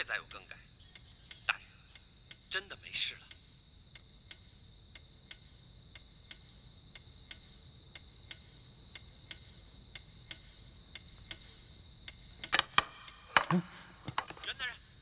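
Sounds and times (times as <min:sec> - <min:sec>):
clock ticking: 0:00.0 - 0:14.9
cricket trilling: 0:00.0 - 0:15.0.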